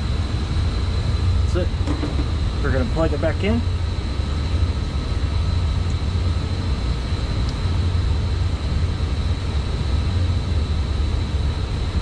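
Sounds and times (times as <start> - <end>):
mechanical equipment rumbling: 0.0 - 8.9
faint high whine: 0.0 - 12.0.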